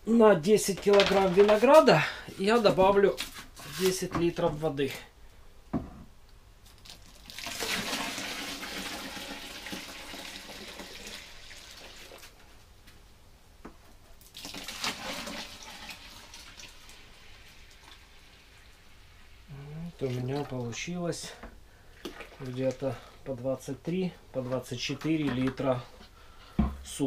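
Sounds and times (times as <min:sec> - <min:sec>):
water pouring into bucket: 0:06.8 - 0:12.3, 0:14.2 - 0:18.8, 0:19.7 - 0:20.8, 0:21.9 - 0:23.2.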